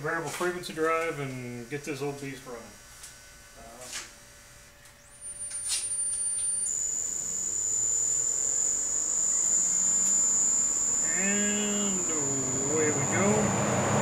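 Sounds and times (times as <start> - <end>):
high-pitched electronic whine: 2.5 - 14.0
faint low hum: 3.5 - 14.0.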